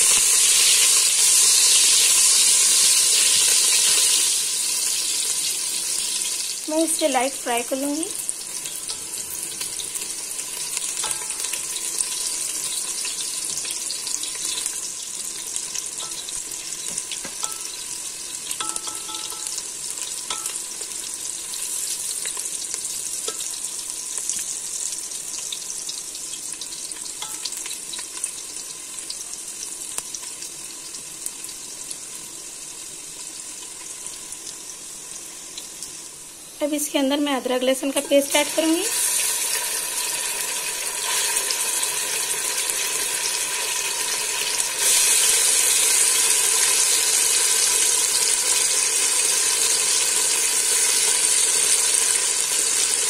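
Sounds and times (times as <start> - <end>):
onions sizzling in hot oil: 0.0 - 53.0
spatula stirring: 10.8 - 11.7.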